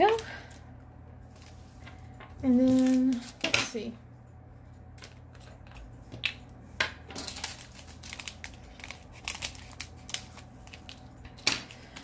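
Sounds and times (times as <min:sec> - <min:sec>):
plastic bag crinkling: 0:07.2 - 0:12.0.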